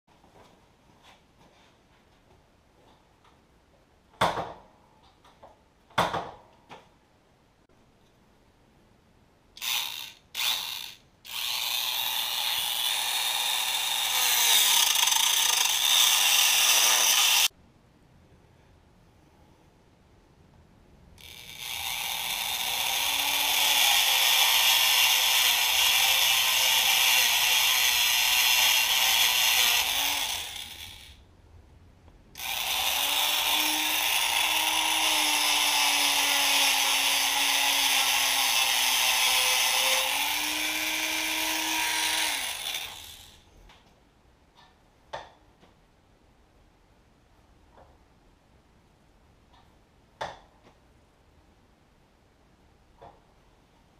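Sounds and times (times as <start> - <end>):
rotary tool grinding metal: 9.6 - 17.5, 21.2 - 31.2, 32.4 - 43.4.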